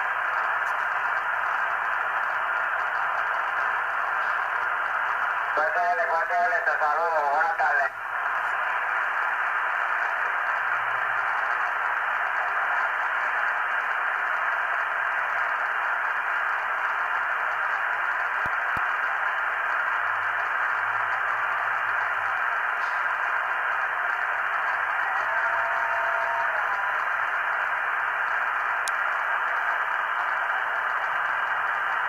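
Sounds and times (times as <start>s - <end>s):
radio static hiss: 0.0s - 32.0s.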